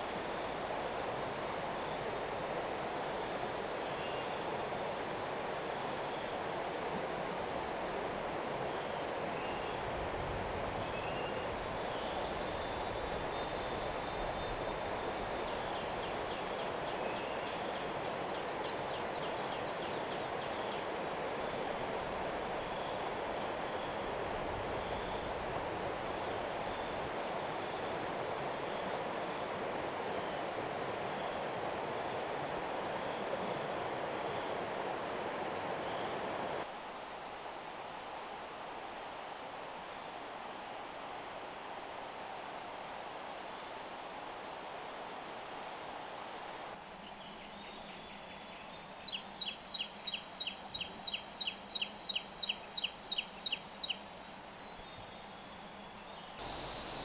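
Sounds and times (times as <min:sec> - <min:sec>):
steady outdoor rushing noise: 0:56.4 - 0:57.0.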